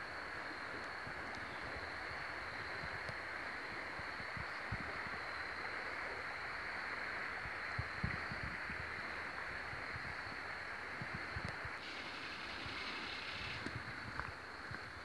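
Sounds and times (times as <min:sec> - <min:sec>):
creek water rushing: 0:00.0 - 0:15.0.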